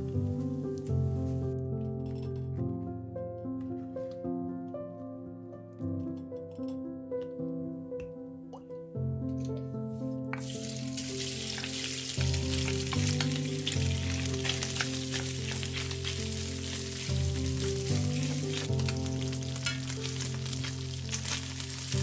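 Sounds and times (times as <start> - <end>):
meat sizzling in oil: 10.4 - 22.0
wooden spoon scraping pan: 12.6 - 18.7.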